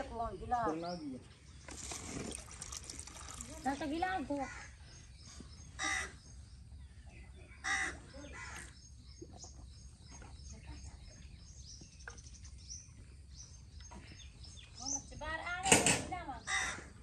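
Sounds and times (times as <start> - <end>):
small birds chirping: 0.0 - 17.0
crow cawing: 5.8 - 6.1, 7.6 - 8.6, 16.4 - 16.9.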